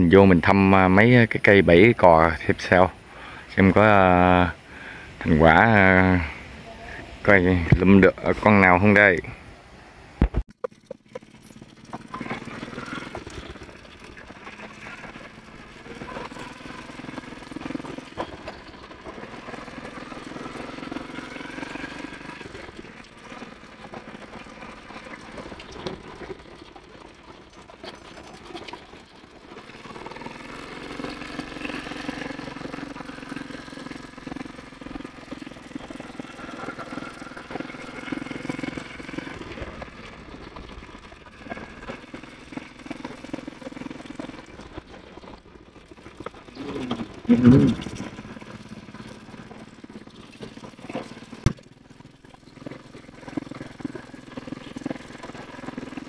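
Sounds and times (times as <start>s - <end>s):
motorbike engine running: 10.2s - 56.0s.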